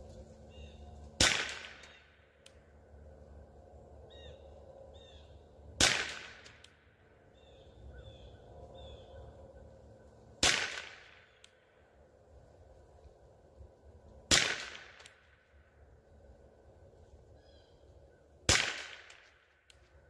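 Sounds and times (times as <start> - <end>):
rifle shots: 1.2 - 2.0, 5.8 - 6.6, 10.4 - 11.3, 14.3 - 15.3, 18.5 - 19.4.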